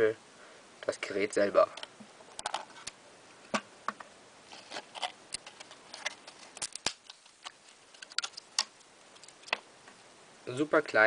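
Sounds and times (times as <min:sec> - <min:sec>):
hard plastic packaging clicking and rustling: 0:03.9 - 0:09.6.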